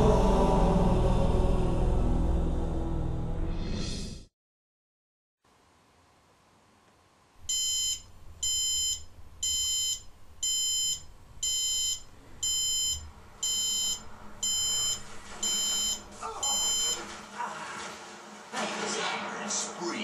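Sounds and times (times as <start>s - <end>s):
alarm clock beeping: 7.5s - 17.1s.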